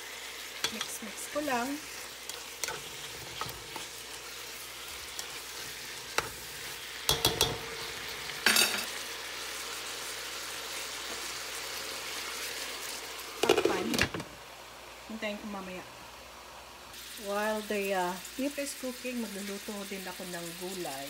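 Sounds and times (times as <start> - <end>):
beef and onions sizzling in pan: 0.0 - 21.0
metal spoon scraping pan: 0.6 - 8.9.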